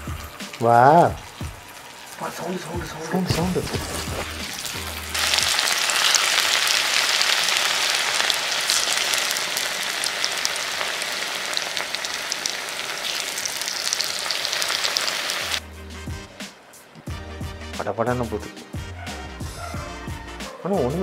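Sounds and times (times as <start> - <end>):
chicken sizzling in hot oil: 0.0 - 15.6.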